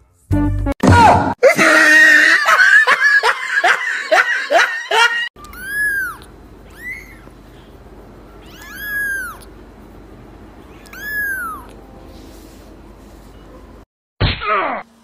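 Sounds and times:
kitten mewing: 5.5s - 7.3s, 8.4s - 9.5s, 10.7s - 11.8s.

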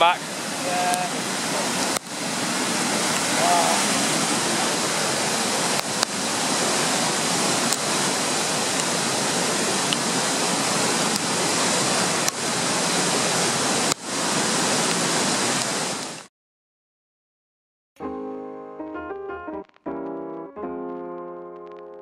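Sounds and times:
whitewater river rushing: 0.0s - 16.3s.

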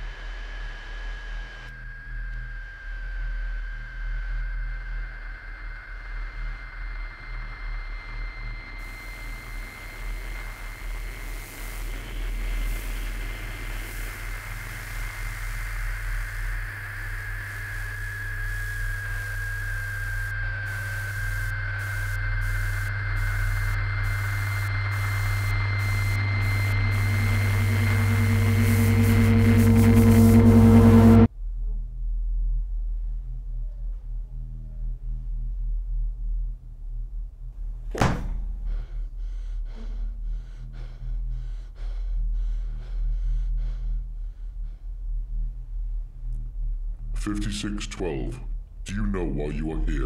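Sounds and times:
electronic static hiss: 0.0s - 31.3s
high thin whine: 0.0s - 31.3s
low hum: 0.0s - 50.0s
steady low drone: 0.0s - 50.0s.

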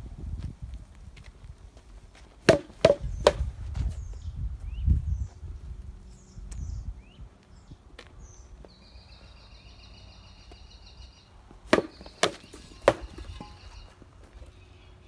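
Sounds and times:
sword striking rubber tyres: 2.4s - 3.5s, 11.7s - 13.8s
bird trilling: 8.8s - 14.9s.

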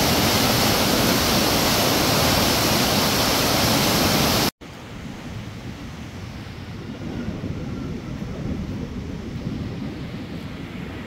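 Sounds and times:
river rushing in flood: 0.0s - 5.4s.

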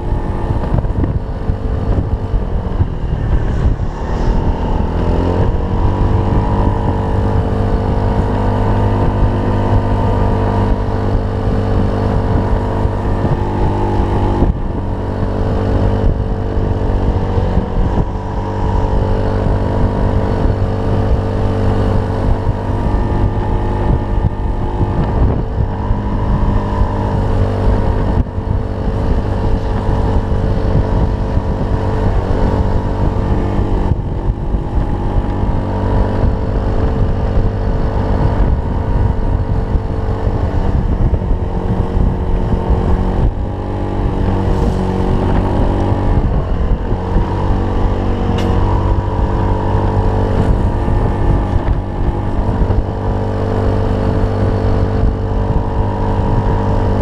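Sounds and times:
scooter engine running: 0.0s - 57.0s.

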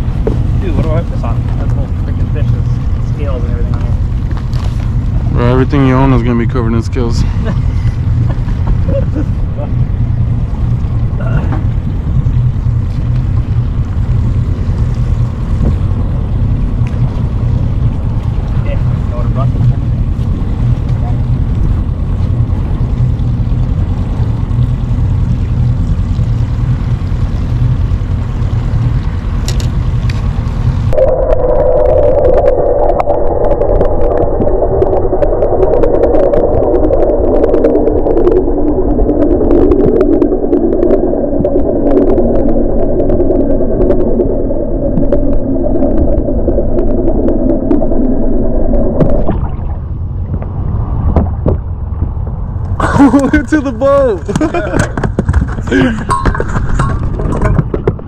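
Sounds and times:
low rumble and wind noise: 0.0s - 58.0s
muffled underwater rush: 0.0s - 58.0s
faint underwater ticks: 10.5s - 31.0s.

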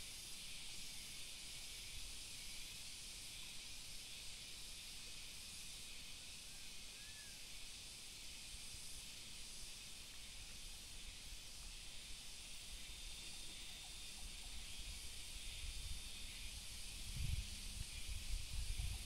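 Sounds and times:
steady high hiss: 0.0s - 19.0s
wind buffeting microphone: 15.5s - 19.0s.

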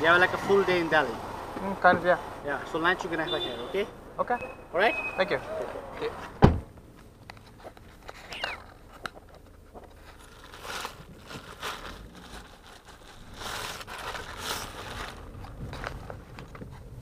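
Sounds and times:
camera handling rustles: 7.3s - 10.4s.

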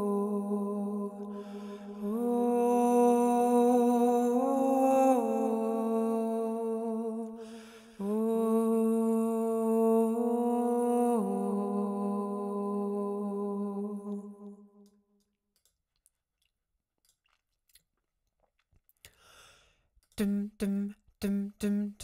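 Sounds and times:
looped held vocal layer: 0.0s - 14.5s, 20.2s - 22.0s
audible breath: 1.3s - 2.0s, 7.4s - 8.1s, 19.1s - 19.9s
woman singing wordless notes: 20.2s - 22.0s.

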